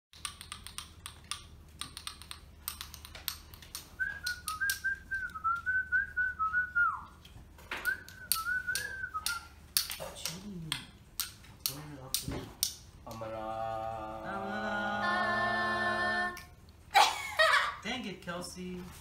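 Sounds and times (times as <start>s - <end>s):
cards and game pieces tapping: 0.1s - 5.0s, 7.8s - 12.8s
person whistling a tune: 4.0s - 7.1s, 7.8s - 9.5s.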